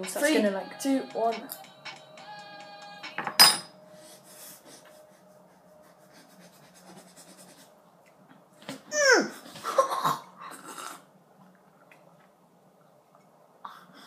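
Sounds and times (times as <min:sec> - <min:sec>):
ringing tone: 0:00.0 - 0:03.9.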